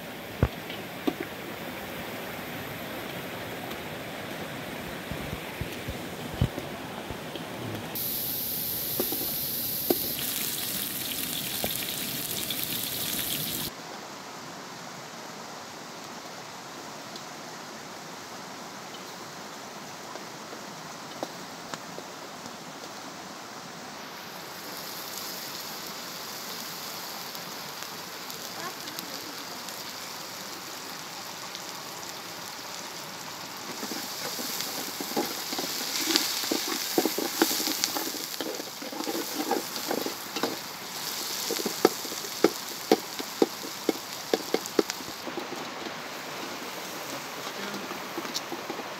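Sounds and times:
food sizzling in a pot: 8.0s - 13.8s, 24.0s - 48.9s
ladle scraping and clinking: 33.7s - 46.0s.

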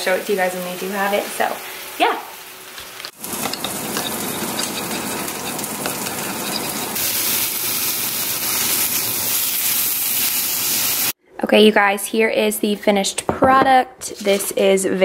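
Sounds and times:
chicken sizzling in a pan: 0.0s - 11.2s.

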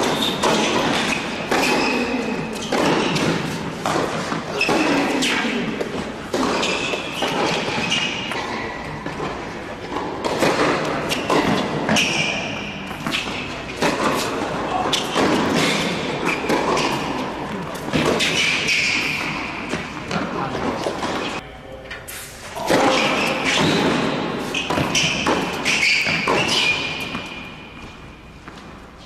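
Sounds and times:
shoe squeaks: 0.0s - 5.5s, 6.4s - 9.2s, 11.1s - 17.3s, 17.9s - 20.1s, 22.1s - 28.4s
tennis ball bouncing: 0.0s - 21.4s, 23.0s - 28.6s
tennis racket strikes: 0.0s - 21.4s, 22.6s - 28.0s.

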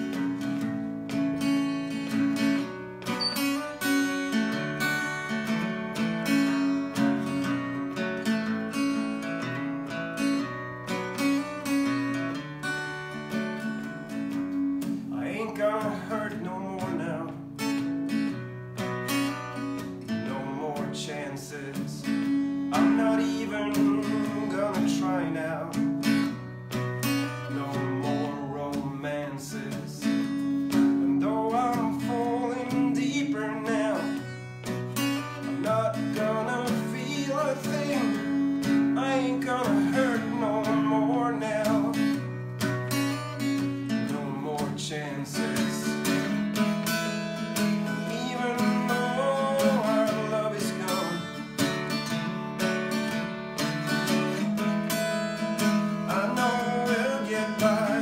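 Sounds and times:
acoustic guitar strumming: 0.0s - 58.0s
man singing: 15.1s - 17.6s, 20.0s - 26.2s, 27.2s - 42.3s, 43.8s - 46.2s, 47.7s - 52.4s, 56.0s - 58.0s.

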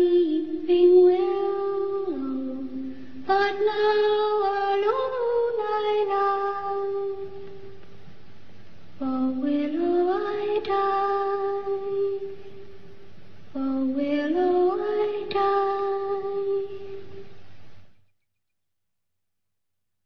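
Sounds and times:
woman singing lullaby melody: 0.0s - 7.8s, 9.0s - 12.7s, 13.5s - 17.3s.

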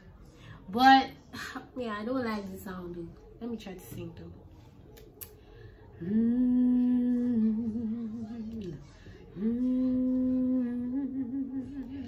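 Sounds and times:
woman humming into a microphone: 6.0s - 12.0s.

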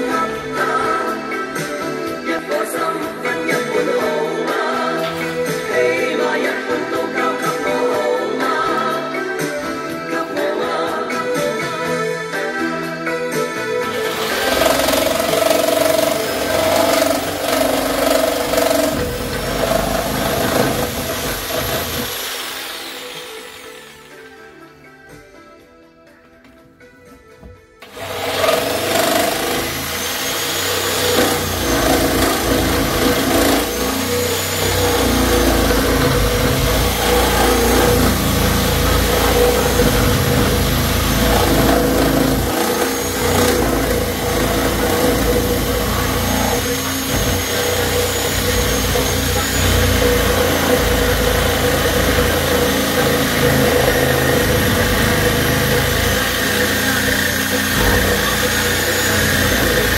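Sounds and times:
reciprocating saw cutting wood: 13.8s - 24.6s, 27.8s - 59.9s.

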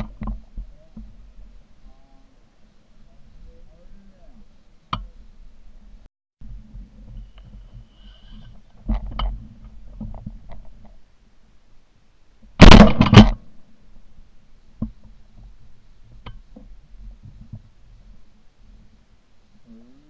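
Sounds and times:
shotgun blast: 12.6s - 13.4s.

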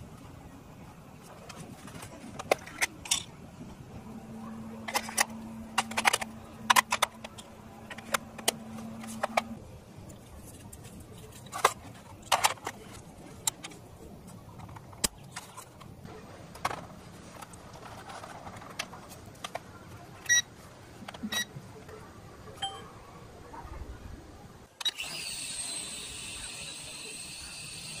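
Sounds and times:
short electronic beeps: 22.6s - 22.9s
toy drone motors whining: 24.8s - 28.0s.

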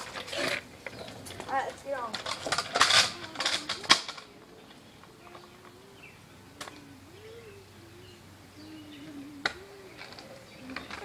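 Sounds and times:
dove cooing: 2.6s - 11.0s.

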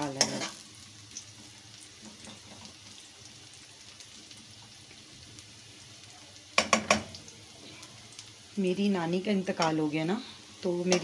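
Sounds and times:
garlic sizzling in oil: 0.0s - 11.0s
metal spoon knocking on pan: 6.6s - 7.2s.

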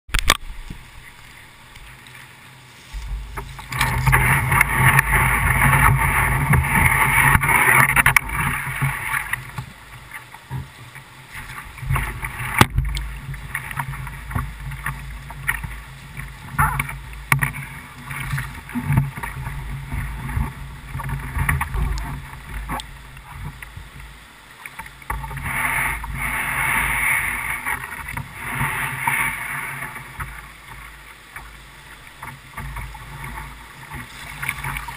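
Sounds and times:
rushing whitewater: 0.2s - 34.9s
kayak and paddle knocks: 2.9s - 9.8s.

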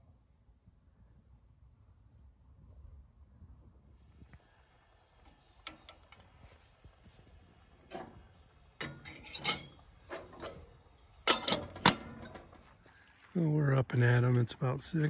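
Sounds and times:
spoon and metal percolator clanking: 4.4s - 12.8s.

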